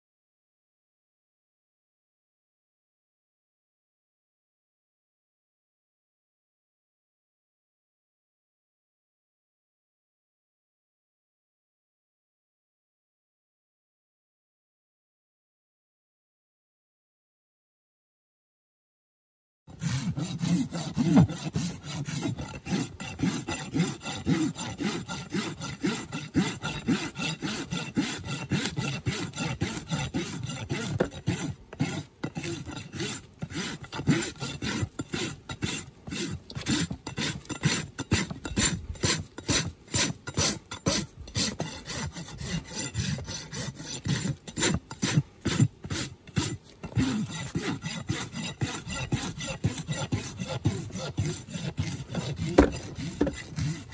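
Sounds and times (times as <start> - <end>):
rasp filing a hoof: 19.7 - 53.9.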